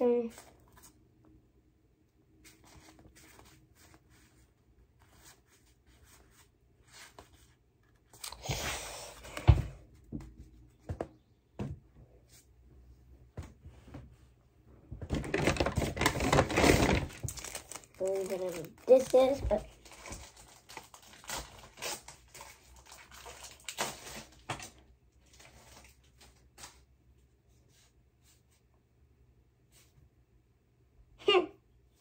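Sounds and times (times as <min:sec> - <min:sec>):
paper rustling and crinkling: 0:02.4 - 0:09.4, 0:15.0 - 0:26.8.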